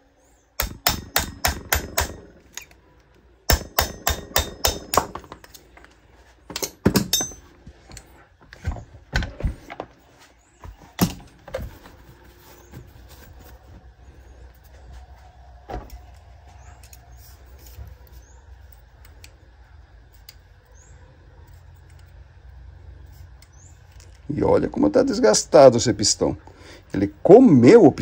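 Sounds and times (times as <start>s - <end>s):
hammer tapping on metal punch: 0.6s - 2.3s, 3.5s - 5.4s.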